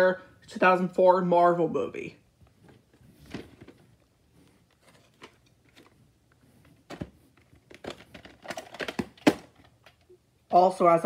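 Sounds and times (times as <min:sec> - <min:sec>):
plastic case clicks and rustles: 0:02.6 - 0:04.0, 0:04.7 - 0:06.0, 0:06.6 - 0:10.1.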